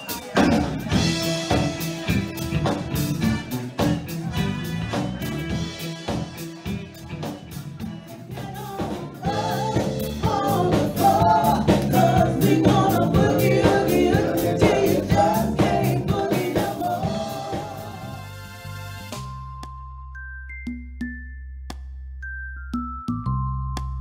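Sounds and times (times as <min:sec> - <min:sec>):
live band playing dance music: 0:00.0 - 0:19.5
woman singing lead: 0:08.0 - 0:18.3.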